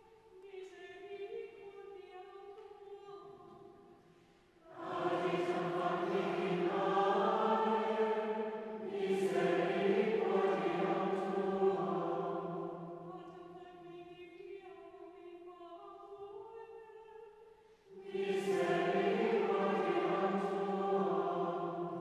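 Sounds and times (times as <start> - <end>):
choir singing chant: 4.6 - 13.8, 17.9 - 22.0.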